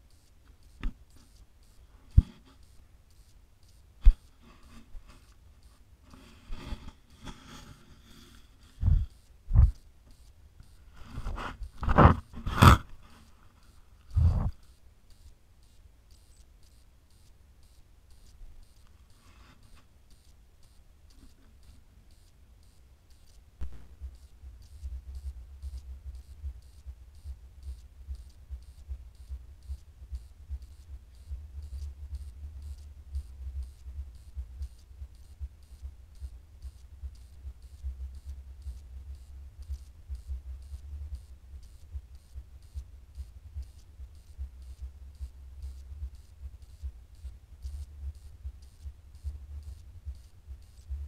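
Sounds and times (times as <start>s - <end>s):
low recording rumble: 0.0s - 16.2s, 16.9s - 51.0s
faint electronic ticking: 0.0s - 51.0s
click: 14.0s - 35.3s.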